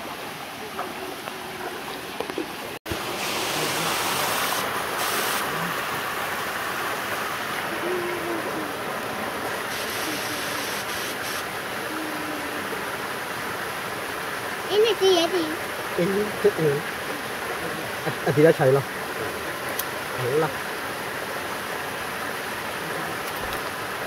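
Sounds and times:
stream water rushing: 0.0 - 24.0
faint voices: 7.6 - 8.9, 9.7 - 12.8.

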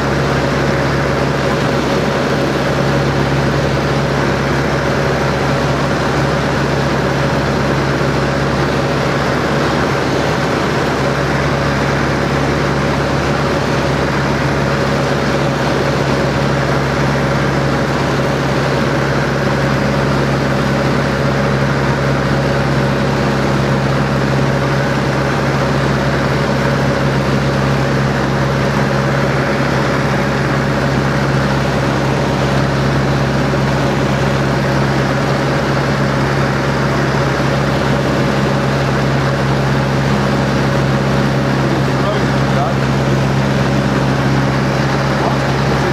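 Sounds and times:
propeller plane engine running: 0.0 - 45.9
airflow rushing: 25.2 - 45.9.

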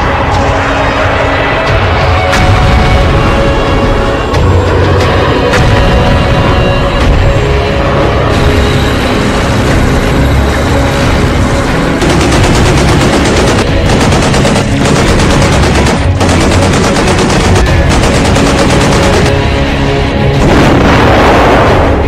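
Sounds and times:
background music: 0.0 - 22.0
rapid machine-gun fire: 12.0 - 19.6.

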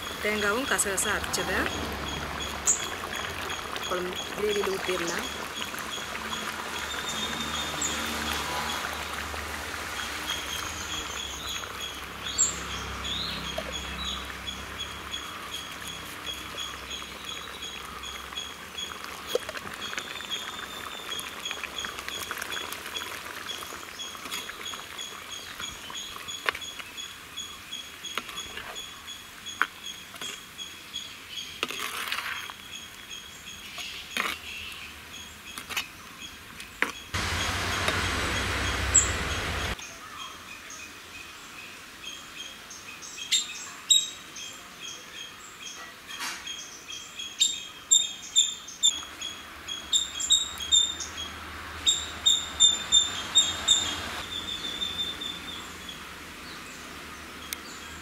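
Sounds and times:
steady rush of noise: 37.2 - 39.8
high repeated chirping: 51.8 - 55.6.

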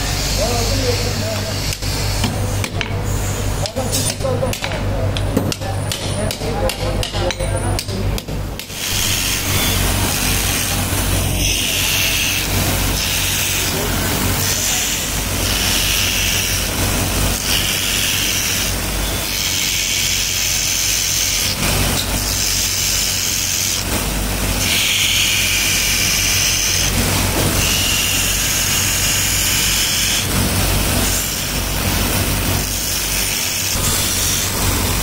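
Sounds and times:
motor hum: 8.4 - 35.0
knife grinding on wheel: 8.6 - 35.0.

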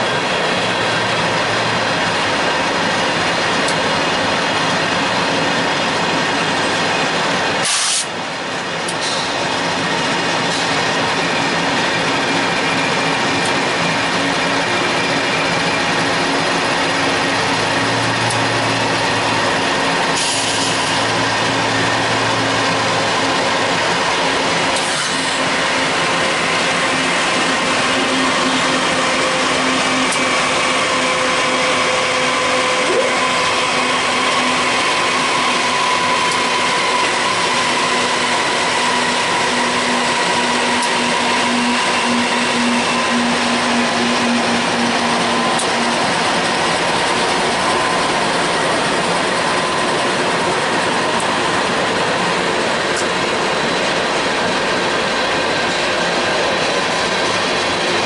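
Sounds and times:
locomotive engine drone: 0.0 - 58.0.

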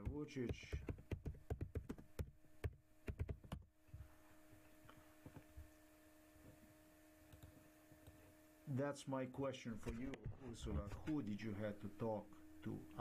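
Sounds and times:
keyboard typing: 0.0 - 3.7
faint electrical hum: 0.0 - 13.0.

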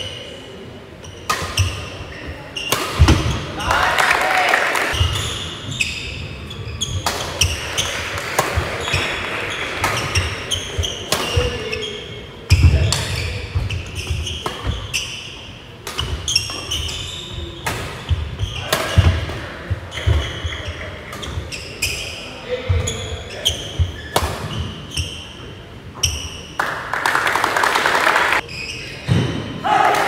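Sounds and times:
racket striking shuttlecock: 6.9 - 11.5.

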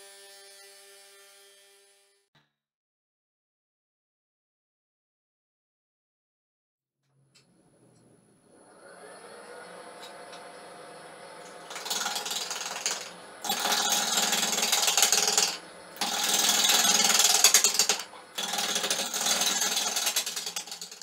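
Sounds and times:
lathe motor hum: 8.2 - 21.0
gouge scraping spinning log: 11.5 - 21.0.

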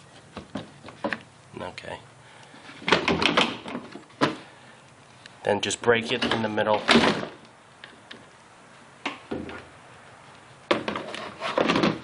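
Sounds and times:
plastic clattering and knocking: 2.8 - 4.4, 10.7 - 12.0.

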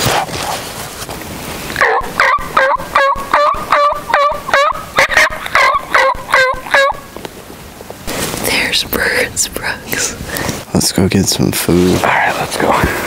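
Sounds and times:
turkey call hen yelps: 1.8 - 7.1.

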